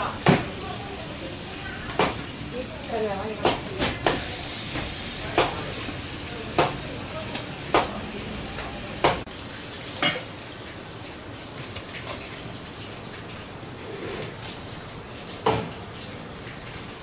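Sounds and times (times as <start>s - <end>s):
fish knocking on cutting board: 3.4s - 4.2s.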